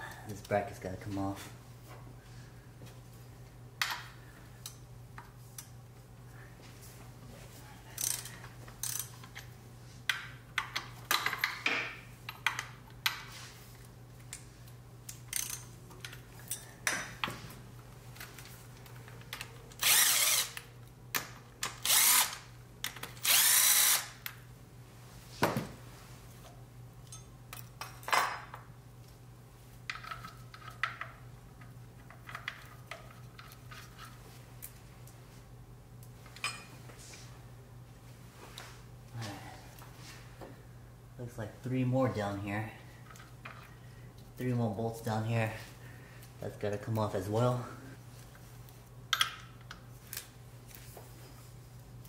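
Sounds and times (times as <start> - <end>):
ratchet clicks: 8.0 - 9.1, 15.1 - 15.7
cordless drill spinning out bolts: 19.8 - 20.6, 21.7 - 22.4, 23.2 - 24.2.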